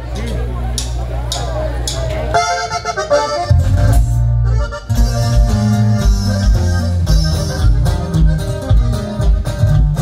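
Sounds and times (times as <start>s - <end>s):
bass: 0.0s - 10.0s
plucked strings: 1.9s - 10.0s
accordion: 2.1s - 10.0s
drums: 3.1s - 10.0s.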